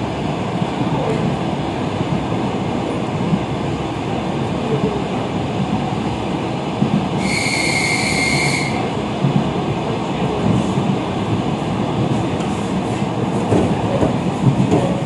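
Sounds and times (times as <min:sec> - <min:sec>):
train wheels rumbling on rails: 0:00.0 - 0:15.0
shrill high steady tone: 0:07.2 - 0:08.9.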